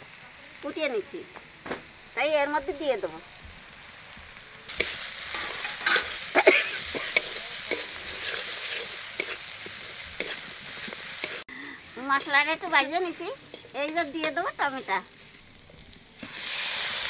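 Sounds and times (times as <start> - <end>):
spices sizzling in hot oil: 0.0 - 17.0
spatula scraping a pan: 4.7 - 15.5.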